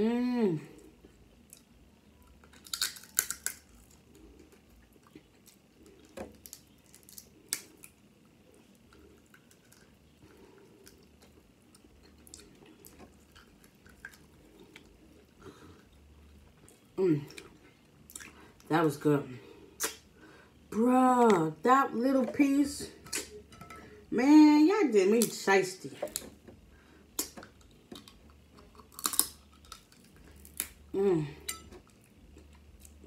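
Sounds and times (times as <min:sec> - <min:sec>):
soft wet chewing: 0:00.8 - 0:18.7, 0:26.0 - 0:30.8
crab shell cracking: 0:02.4 - 0:04.0, 0:05.4 - 0:08.0, 0:27.2 - 0:30.8.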